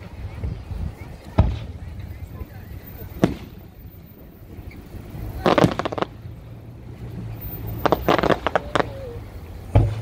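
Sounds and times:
low steady rumble: 0:00.0 - 0:10.0
fireworks bangs: 0:01.3 - 0:03.8, 0:05.3 - 0:06.2, 0:07.0 - 0:10.0.

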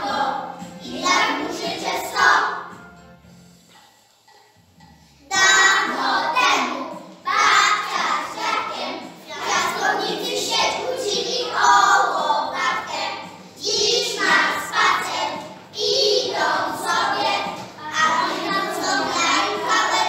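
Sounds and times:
children singing in unison: 0:00.0 - 0:02.8, 0:05.3 - 0:20.0.

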